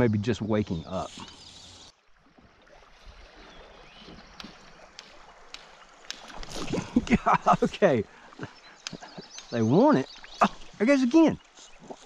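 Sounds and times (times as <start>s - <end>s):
river water flowing: 0.0s - 12.0s
light ticks: 4.3s - 12.0s.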